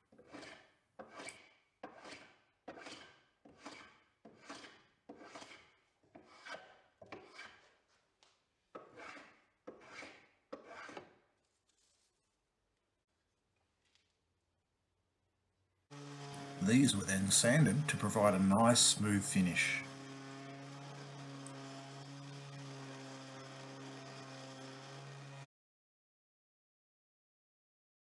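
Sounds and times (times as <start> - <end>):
hand plane shaving wood: 0.0 - 12.0, 15.9 - 25.5.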